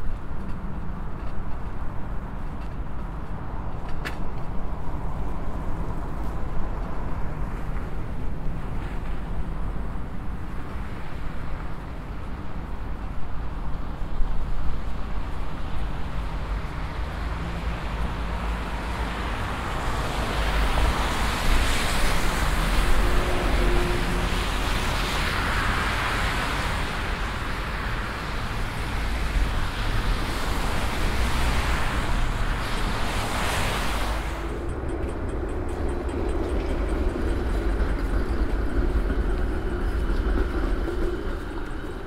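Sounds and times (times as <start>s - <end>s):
wind rumble on microphone: 0.0s - 42.0s
cars passing: 15.4s - 42.0s.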